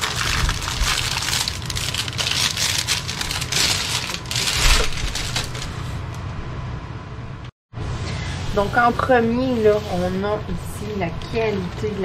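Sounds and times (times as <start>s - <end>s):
plastic wrap crinkling: 0.0s - 6.0s.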